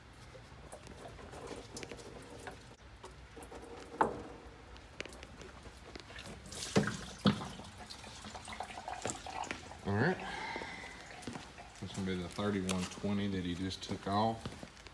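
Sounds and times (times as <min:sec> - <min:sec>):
fuel dripping: 0:00.1 - 0:14.9
small clicks and scraping: 0:00.2 - 0:06.4.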